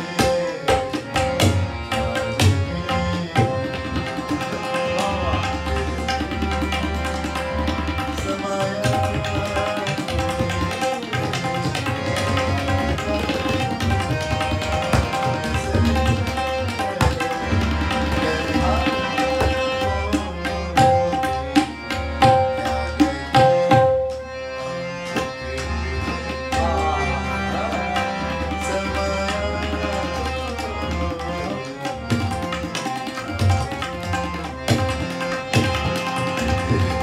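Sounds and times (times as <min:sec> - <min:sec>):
tabla drumming: 0:00.0 - 0:24.3, 0:25.0 - 0:37.0
held melodic notes: 0:00.0 - 0:37.0.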